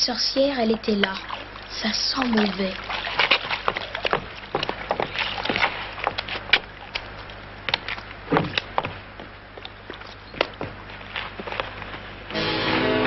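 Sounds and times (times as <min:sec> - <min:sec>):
low steady hum: 0:00.0 - 0:13.0
footsteps on creaking wood: 0:03.0 - 0:12.1.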